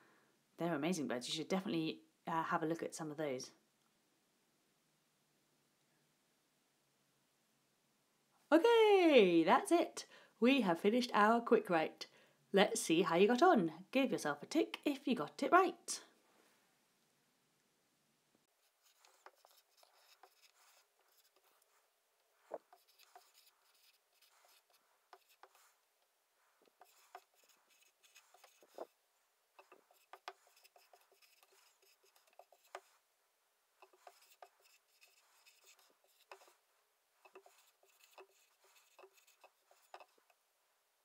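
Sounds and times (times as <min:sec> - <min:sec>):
marker writing on whiteboard: 0:18.6 - 0:25.8, 0:26.5 - 0:29.0, 0:29.6 - 0:33.0, 0:33.8 - 0:36.6, 0:37.2 - 0:40.4.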